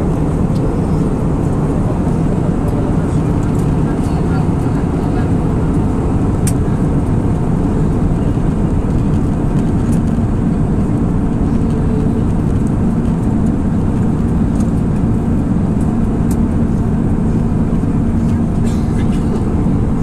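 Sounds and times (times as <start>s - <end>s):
jet engines rumbling: 0.0s - 20.0s.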